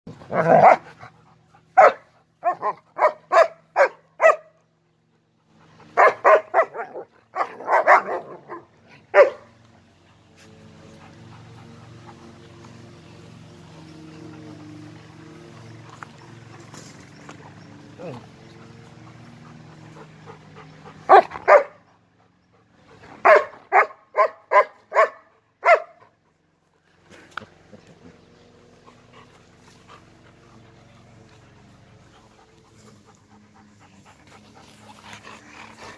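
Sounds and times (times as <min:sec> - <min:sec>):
dogs barking: 0:00.3 - 0:04.6, 0:05.8 - 0:09.6, 0:15.6 - 0:21.9, 0:22.9 - 0:26.1.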